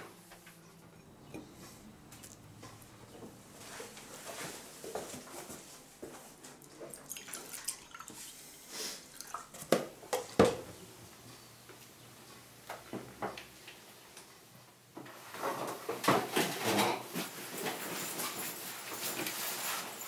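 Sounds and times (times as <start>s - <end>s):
crockery and cutlery clinking: 0.0s - 3.2s
milk being poured: 6.6s - 8.4s, 9.0s - 10.4s.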